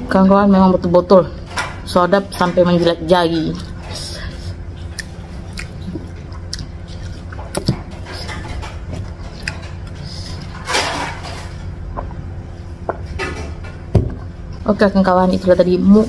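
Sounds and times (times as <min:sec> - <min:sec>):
steady low hum: 0:00.0 - 0:16.0
mouth clicks and smacks: 0:04.9 - 0:07.8.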